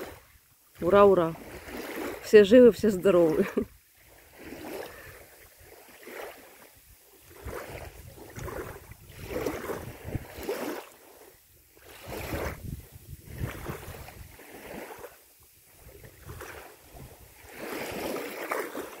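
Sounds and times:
small waves lapping: 0.0s - 19.0s
wind buffeting microphone: 7.2s - 10.7s, 11.8s - 15.0s, 15.6s - 18.2s.

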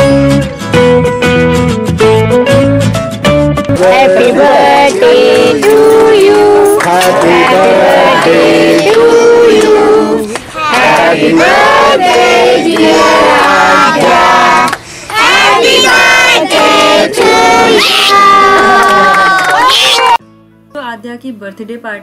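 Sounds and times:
group of voices singing: 3.7s - 19.1s.

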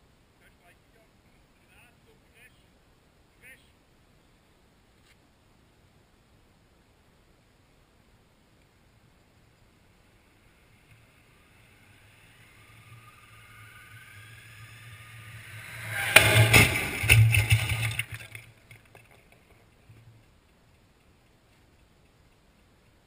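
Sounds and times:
motorcycle whining: 9.7s - 18.5s
loud crash of metal: 15.6s - 18.4s.

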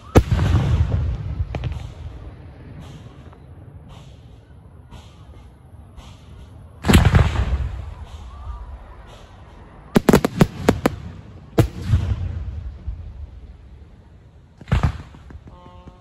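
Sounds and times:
sharp firework cracks: 0.0s - 3.2s, 6.8s - 13.4s, 14.6s - 15.6s
fireworks heavy bang: 0.0s - 5.3s, 6.8s - 13.8s, 14.6s - 16.0s
rolling rumble: 0.2s - 16.0s.

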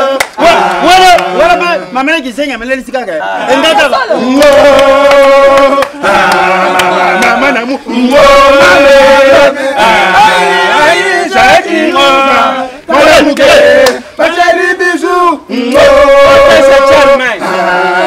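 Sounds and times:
voices chanting in held notes: 0.0s - 2.0s, 3.2s - 18.0s.

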